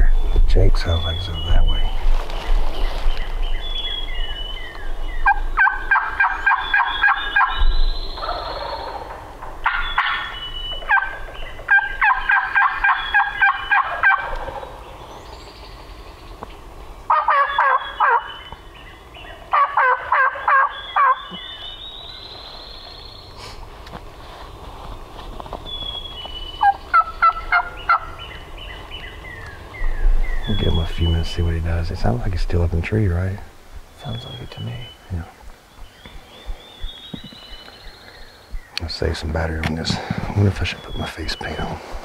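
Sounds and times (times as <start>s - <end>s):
songbirds calling: 0.0s - 42.0s
turkey gobbling: 5.2s - 14.9s, 17.1s - 18.6s, 19.3s - 23.0s, 26.6s - 29.8s.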